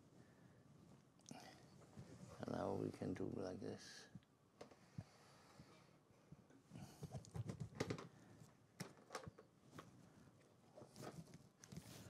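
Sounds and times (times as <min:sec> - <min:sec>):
small taps clicks and rustles: 0:07.0 - 0:08.2, 0:08.8 - 0:10.0.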